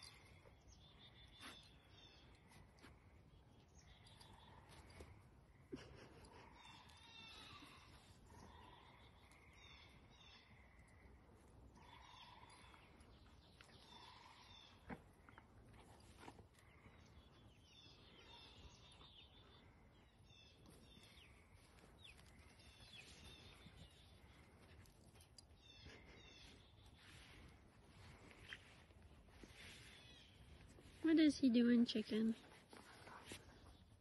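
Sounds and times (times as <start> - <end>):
faint bird chirps: 0.0 - 15.5
soft low bird calls: 0.0 - 31.0.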